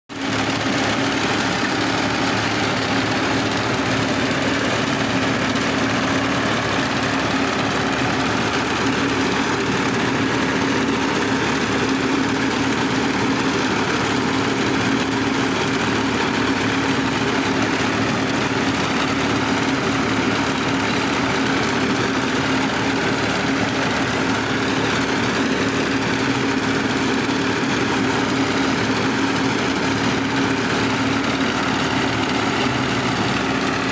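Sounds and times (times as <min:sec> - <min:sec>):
tractor diesel engine running: 0:00.1 - 0:33.9.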